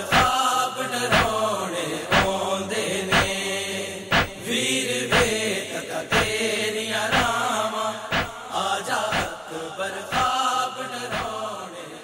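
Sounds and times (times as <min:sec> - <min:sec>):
man chanting a lament: 0:00.0 - 0:12.0
steady beat: 0:00.1 - 0:00.4, 0:01.1 - 0:01.4, 0:02.1 - 0:02.3, 0:03.1 - 0:03.4, 0:04.1 - 0:04.4, 0:05.1 - 0:05.4, 0:06.1 - 0:06.4, 0:07.1 - 0:07.4, 0:08.1 - 0:08.4, 0:09.1 - 0:09.4, 0:10.1 - 0:10.3, 0:11.1 - 0:11.4.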